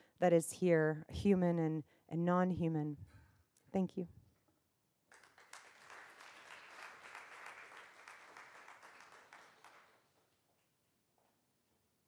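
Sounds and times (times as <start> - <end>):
audience applauding: 5.1 - 10.2.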